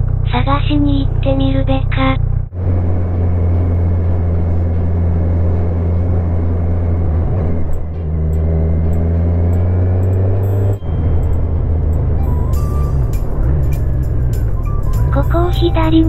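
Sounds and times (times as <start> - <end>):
motorcycle engine running: 0.0 - 16.0
road noise: 0.0 - 16.0.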